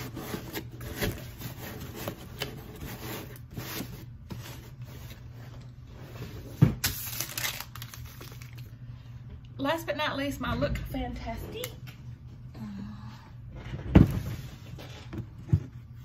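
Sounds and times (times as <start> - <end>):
cardboard rustling and scraping: 0.0 - 6.7.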